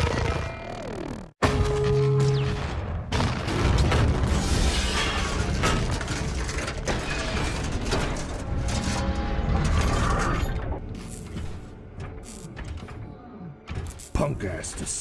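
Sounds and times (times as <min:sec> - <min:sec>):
crashes and impacts: 0:01.4 - 0:10.2
metallic clanking and grinding: 0:03.5 - 0:13.0
music: 0:07.4 - 0:15.0.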